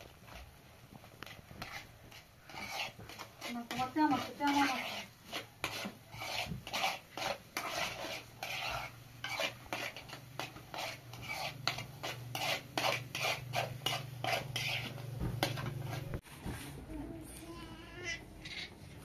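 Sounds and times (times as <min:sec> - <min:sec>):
utensil scraping eggs in metal pan: 0:01.2 - 0:16.2.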